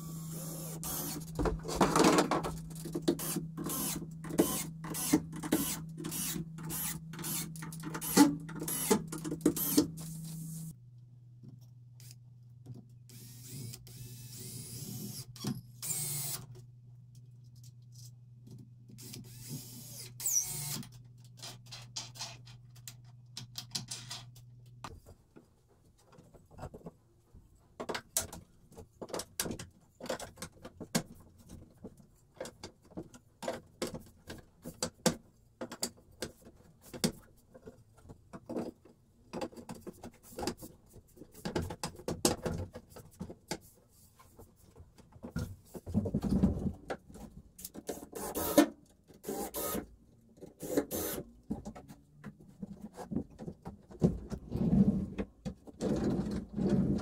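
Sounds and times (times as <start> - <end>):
cordless drill driving screws: 0.0 - 1.4, 3.2 - 10.6, 13.1 - 16.5, 19.0 - 20.9, 47.9 - 49.8, 50.6 - 51.2.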